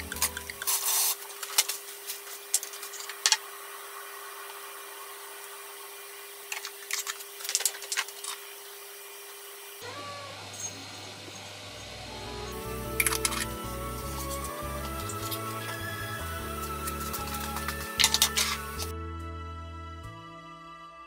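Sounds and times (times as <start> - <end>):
kitchen utensils clicking: 17.0 - 18.9.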